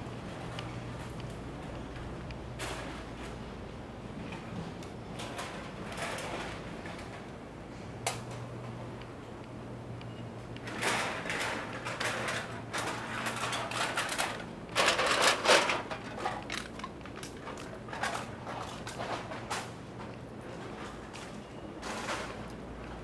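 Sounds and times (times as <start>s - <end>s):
steady low city hum: 0.0s - 23.0s.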